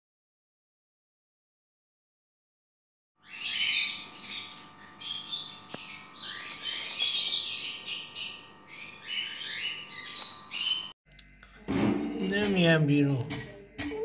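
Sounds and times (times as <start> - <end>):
lovebirds chirping: 3.2 - 11.0.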